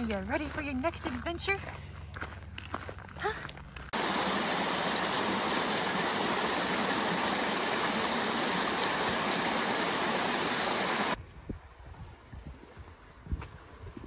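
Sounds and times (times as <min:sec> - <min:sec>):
creek rushing over rocks: 0:04.0 - 0:11.2.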